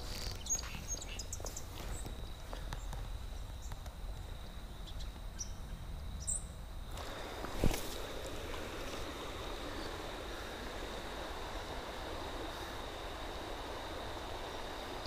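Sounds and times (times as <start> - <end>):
hiss: 6.9 - 15.0.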